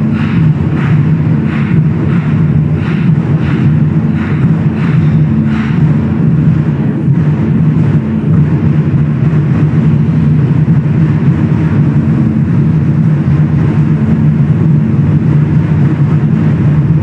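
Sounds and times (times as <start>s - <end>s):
sharp accented drum strikes: 0.0s - 13.0s
drum ensemble rumbling: 0.0s - 17.0s.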